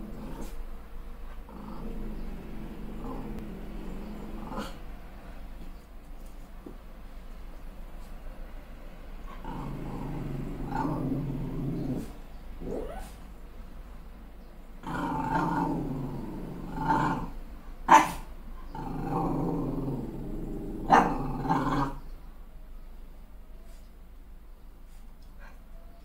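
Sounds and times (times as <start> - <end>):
puppy growling: 0.0 - 0.7, 1.3 - 4.9, 9.3 - 13.3, 14.8 - 22.1
puppy barking: 17.9 - 18.3, 20.9 - 21.8.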